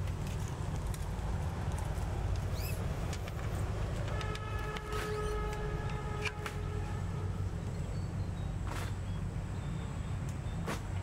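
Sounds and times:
continuous low rumble: 0:00.0 - 0:11.0
steady horn-like tone: 0:04.1 - 0:07.5.

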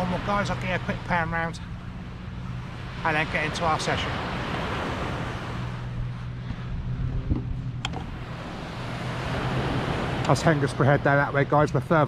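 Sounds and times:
low engine drone: 0:00.0 - 0:12.0
wind on microphone: 0:04.3 - 0:10.3.

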